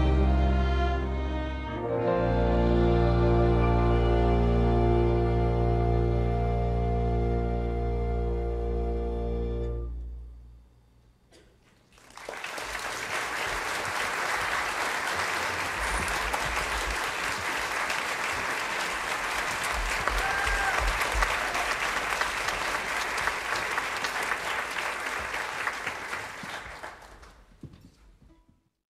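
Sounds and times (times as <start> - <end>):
orchestral music: 0.0 - 10.4
audience applauding: 11.8 - 27.5.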